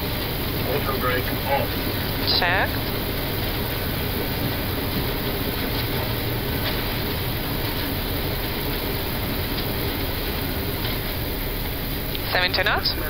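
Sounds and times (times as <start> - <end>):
air noise: 0.0 - 13.0
jet engines idling: 0.0 - 13.0
wheels rumbling on runway: 0.0 - 13.0.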